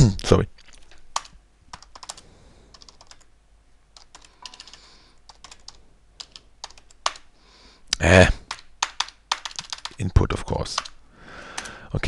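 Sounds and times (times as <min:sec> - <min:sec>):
computer keyboard typing: 0:00.6 - 0:03.3, 0:04.0 - 0:07.3, 0:08.4 - 0:11.8.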